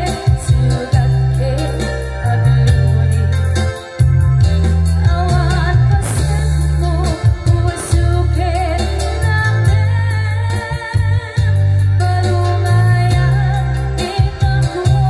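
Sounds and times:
woman singing with vibrato: 0.0 - 3.4, 4.8 - 15.0
electronic keyboards with bass: 0.0 - 15.0
steady beat: 0.3 - 9.8.

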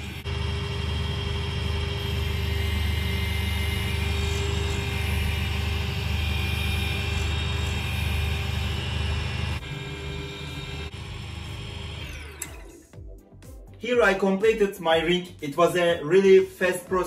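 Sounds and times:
lathe humming: 0.0 - 12.6.

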